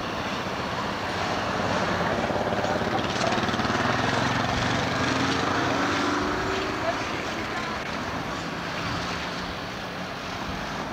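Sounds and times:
city street traffic: 0.0 - 10.9
tram rumbling past: 0.0 - 10.9.

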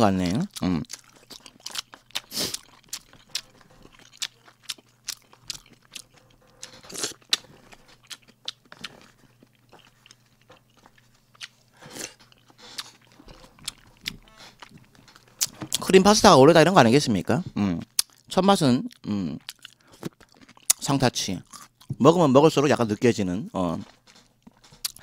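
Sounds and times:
man chewing and lip smacking: 0.4 - 15.8, 17.8 - 20.8, 23.8 - 25.0.

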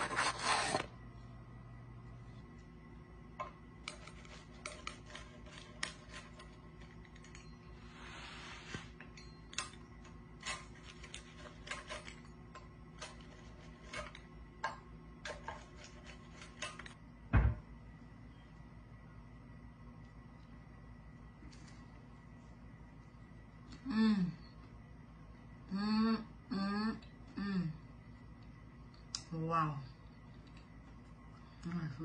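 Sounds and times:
pizza wheel cutting crust: 0.0 - 0.9, 3.9 - 6.6
loud low thump: 17.3 - 17.6.

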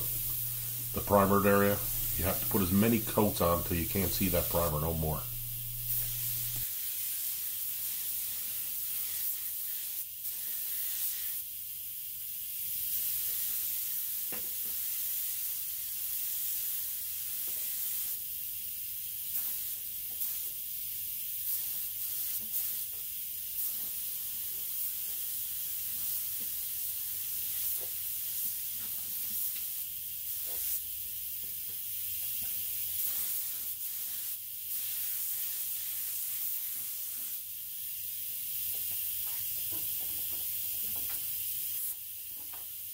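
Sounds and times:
spray gun hissing: 0.0 - 11.4, 32.6 - 39.6.

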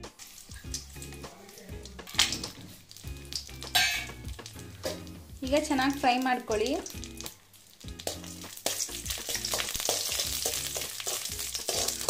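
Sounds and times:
spoon scraping and tapping pan: 0.0 - 5.2, 8.0 - 12.0
nuts sizzling in hot fat: 0.0 - 12.0.

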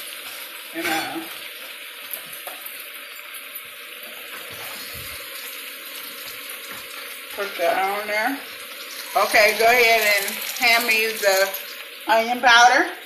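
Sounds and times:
meat and spinach sizzling in a pan: 0.0 - 13.0.

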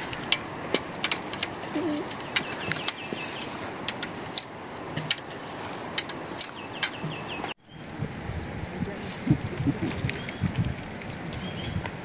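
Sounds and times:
wooden sticks knocking: 0.0 - 7.5.

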